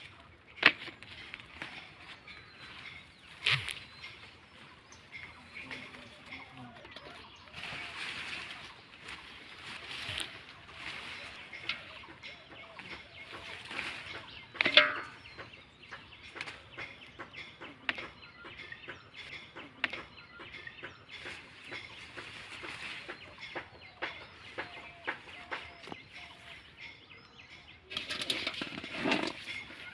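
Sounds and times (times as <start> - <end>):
chickens clucking: 0.0 - 29.9
leaves rustling and stems snapping: 7.0 - 15.2.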